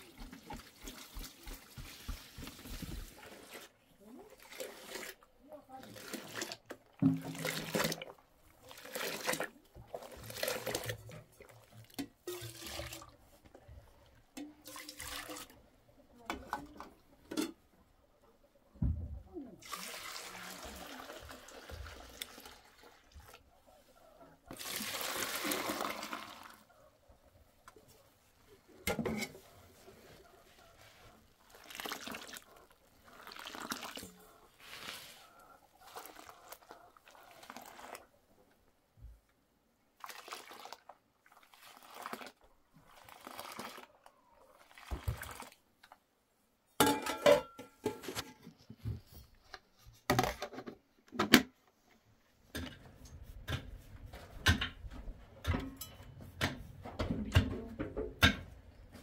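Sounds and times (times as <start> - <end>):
water sloshing and splashing: 0.0 - 13.6, 14.4 - 15.7, 30.8 - 38.1, 40.0 - 45.7.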